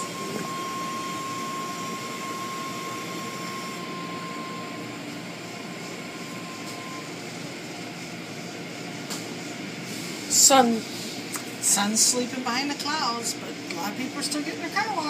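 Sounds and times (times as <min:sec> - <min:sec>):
thin high whine: 0:00.0 - 0:10.6.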